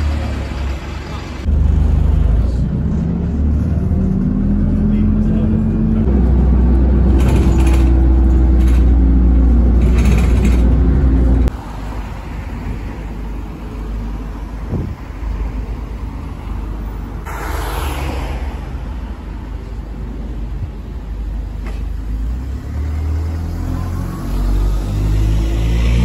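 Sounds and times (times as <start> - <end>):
diesel bus engine droning: 0.0 - 11.5
street sound: 0.0 - 26.0.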